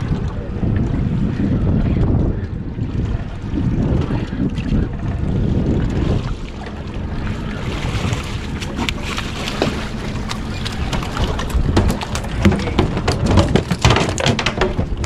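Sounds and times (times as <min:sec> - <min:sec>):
wind rumble on microphone: 0:00.0 - 0:15.0
fish slapping on boat: 0:07.6 - 0:15.0
fish splashing in water: 0:07.6 - 0:15.0.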